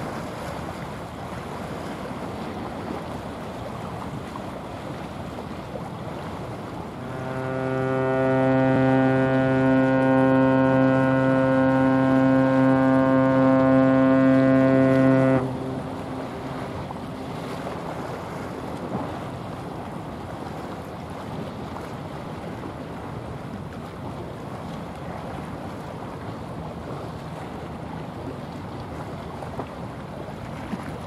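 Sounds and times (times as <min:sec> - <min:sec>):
water rushing: 0:00.0 - 0:31.0
wind: 0:00.0 - 0:31.0
deep ship horn blast: 0:06.9 - 0:20.0.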